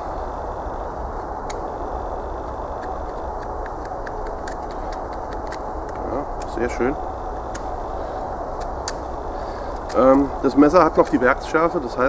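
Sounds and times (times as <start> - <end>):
steady background rush: 0.0 - 12.0
knife whittling wood clicks: 2.4 - 6.6, 8.6 - 9.1, 10.9 - 11.3.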